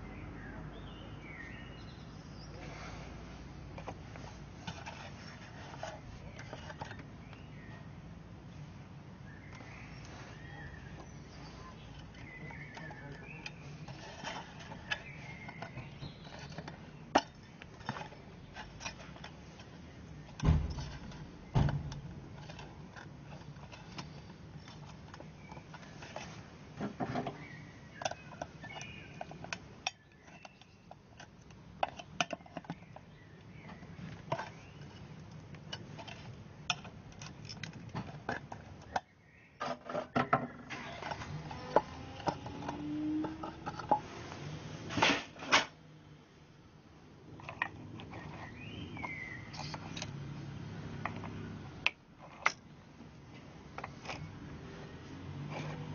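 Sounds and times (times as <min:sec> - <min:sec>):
heavy thumps: 0:20.4 - 0:22.4.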